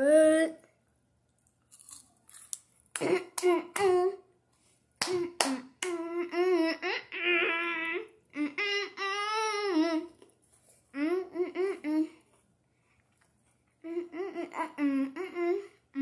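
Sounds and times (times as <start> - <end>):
girl's wordless vocal sounds: 0.0 - 0.7, 10.9 - 12.2, 13.8 - 16.0
crunchy chewing: 1.4 - 2.9.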